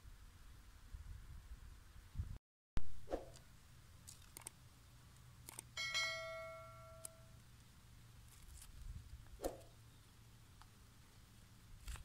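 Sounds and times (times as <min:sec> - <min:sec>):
bright bell-like ding: 0:05.8 - 0:07.3.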